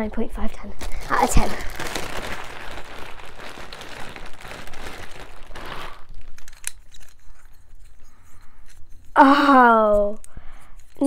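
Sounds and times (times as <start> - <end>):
plastic bag crinkling: 0.6 - 8.0.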